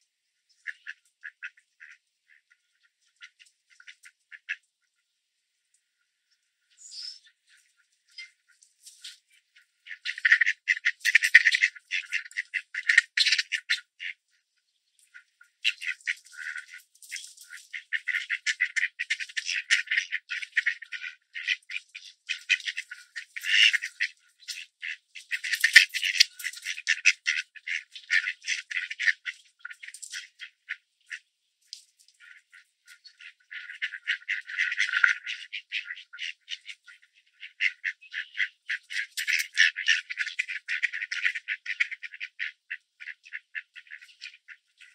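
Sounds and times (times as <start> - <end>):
duck bills clicking while pecking: 22.0 - 30.8, 37.4 - 44.3.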